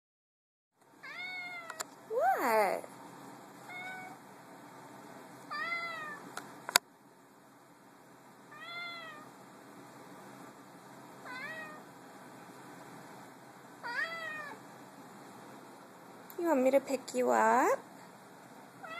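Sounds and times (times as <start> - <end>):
cat meowing: 1.0 - 1.8, 3.7 - 4.2, 5.5 - 6.2, 8.5 - 9.3, 11.2 - 11.8, 13.8 - 14.6.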